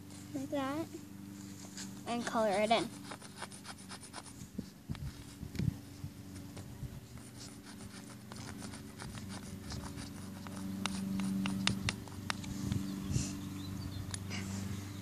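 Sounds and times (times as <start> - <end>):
chalk scratching on asphalt: 1.5 - 5.4, 7.0 - 13.0.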